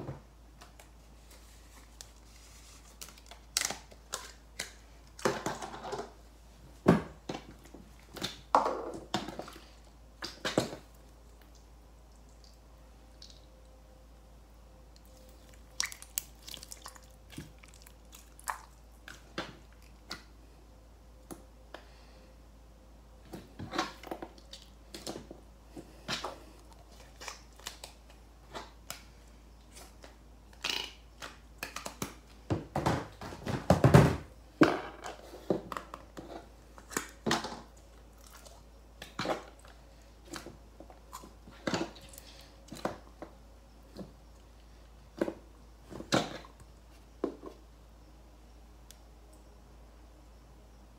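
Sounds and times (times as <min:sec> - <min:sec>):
slime squishing: 0:14.9 - 0:20.3.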